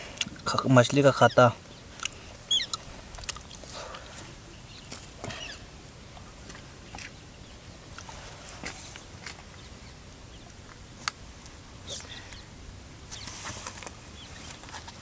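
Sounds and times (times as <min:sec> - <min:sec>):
outdoor background noise: 0:00.0 - 0:15.0
handling clicks and rustling: 0:13.1 - 0:15.0.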